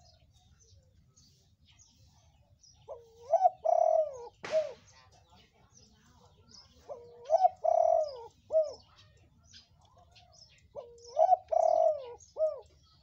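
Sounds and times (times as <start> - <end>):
small birds chirping: 0.0 - 13.0
dove cooing: 2.9 - 4.8, 6.7 - 9.2, 10.0 - 13.0.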